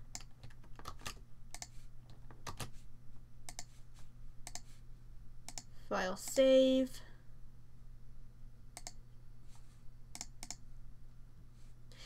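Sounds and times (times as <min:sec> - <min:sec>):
low steady hum: 0:00.0 - 0:12.0
keyboard and mouse clicks: 0:00.1 - 0:02.7, 0:03.5 - 0:03.7, 0:04.4 - 0:04.7, 0:05.5 - 0:05.7, 0:08.8 - 0:09.0, 0:10.1 - 0:10.6.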